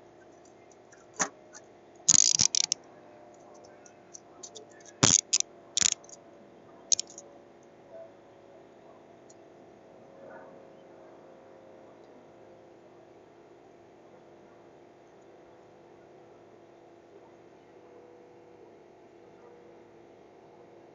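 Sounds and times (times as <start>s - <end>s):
metal handcuffs clicking: 2.1s - 2.8s, 4.4s - 6.2s, 6.9s - 7.2s.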